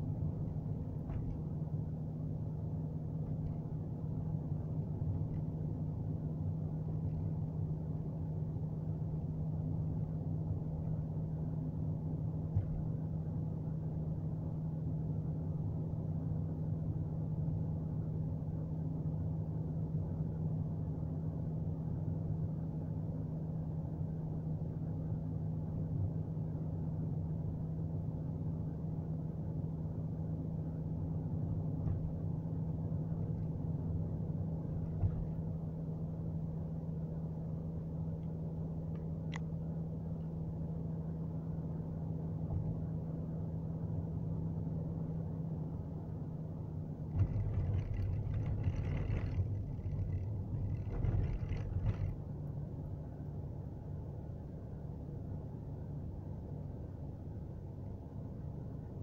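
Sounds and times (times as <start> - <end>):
car engine and tyre drone: 47.0 - 53.4.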